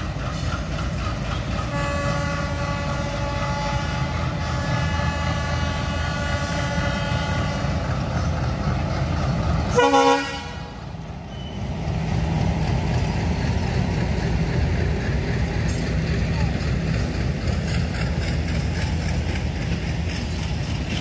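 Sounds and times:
train coaches rumbling past: 0.0 - 21.0
train horn: 1.6 - 7.8, 9.7 - 10.8.

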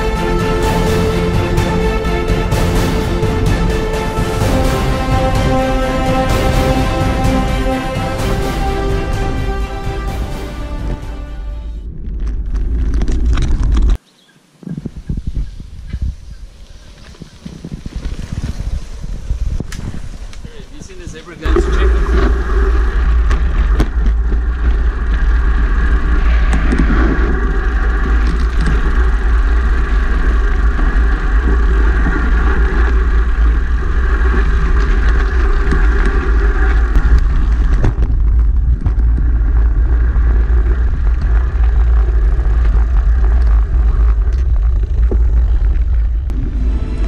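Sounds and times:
steady higher hum: 0.0 - 12.0, 21.4 - 37.0, 39.2 - 47.0
wind buffeting microphone: 14.6 - 47.0
bike rattling over dirt trail: 16.1 - 47.0.

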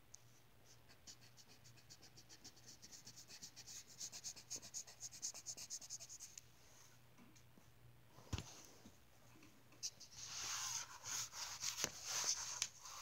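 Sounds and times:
scribbling on paper: 0.7 - 6.3, 9.8 - 13.0.

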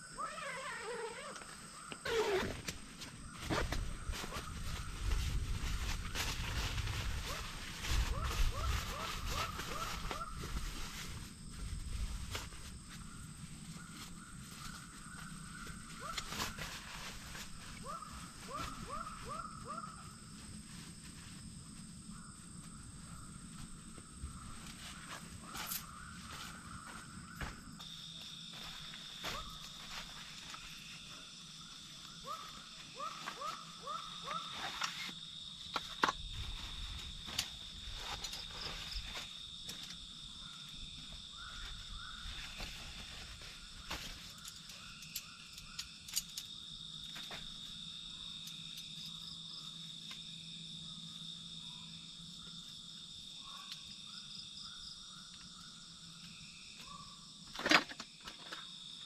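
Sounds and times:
camp gear clicks and knocks: 34.6 - 36.4, 43.9 - 47.6, 57.5 - 58.8.

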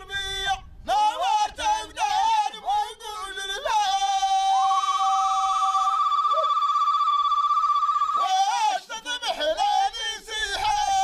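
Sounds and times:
high warbling held tone: 4.6 - 8.2.

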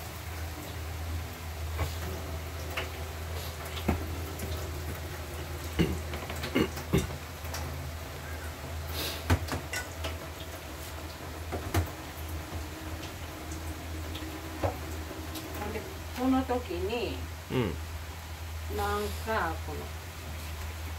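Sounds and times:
brief hiss: 8.9 - 9.2
utensils clinking on pans: 9.6 - 10.2.

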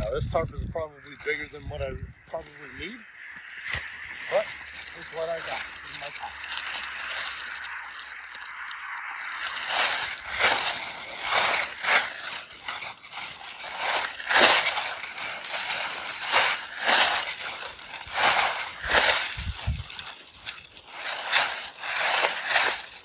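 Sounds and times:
plastic tarp crinkling: 0.0 - 23.0.

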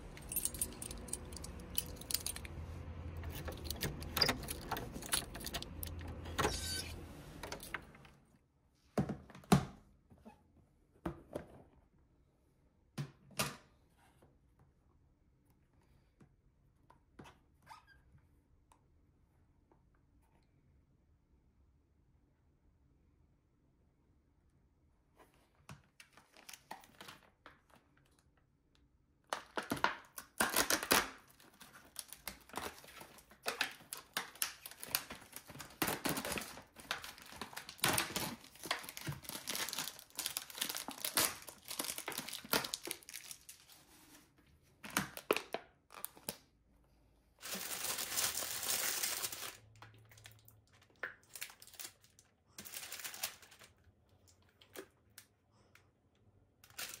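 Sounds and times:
plastic packaging crinkling: 29.4 - 43.9, 47.4 - 55.2, 56.6 - 57.0.

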